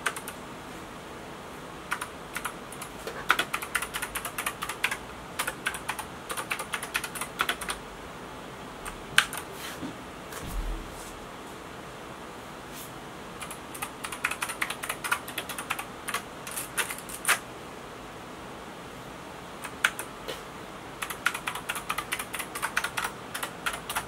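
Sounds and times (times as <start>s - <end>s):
keyboard keys clicking: 0.0s - 0.4s, 1.9s - 7.8s, 13.4s - 17.4s, 19.6s - 20.1s, 21.0s - 24.0s.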